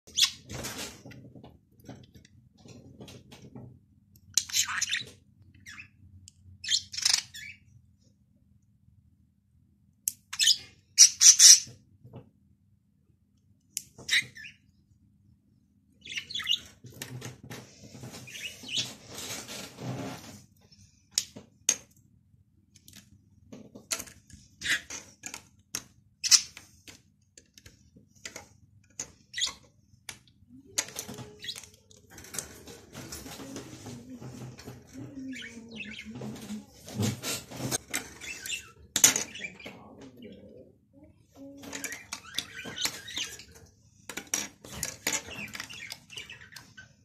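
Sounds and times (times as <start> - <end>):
small bird chirping: 4.3 - 7.8, 10.2 - 11.8, 16.0 - 16.8.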